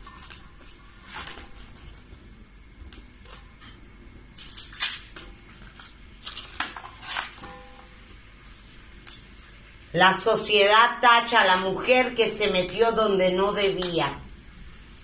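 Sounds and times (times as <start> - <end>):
paper rustling and crinkling: 4.4 - 7.4.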